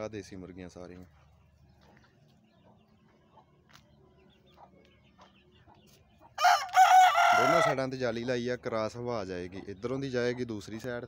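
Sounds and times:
chickens chirping and clucking: 0:00.0 - 0:11.0
rooster crowing: 0:06.4 - 0:07.8.

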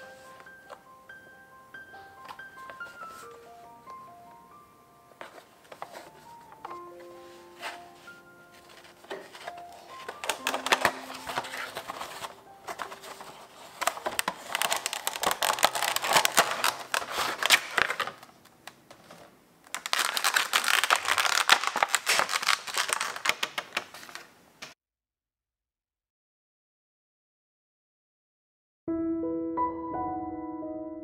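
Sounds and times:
plastic and cardboard crinkling: 0:02.1 - 0:04.2, 0:05.2 - 0:24.8.

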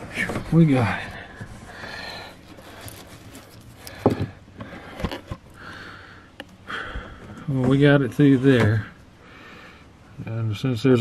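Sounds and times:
soft rustling handling noise: 0:00.0 - 0:05.8.

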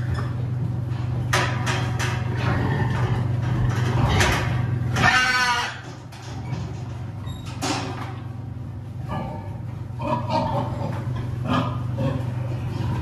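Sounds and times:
steady low hum: 0:00.0 - 0:13.0
metal crate bars clanking: 0:01.0 - 0:08.5
pig squealing: 0:04.9 - 0:05.8.

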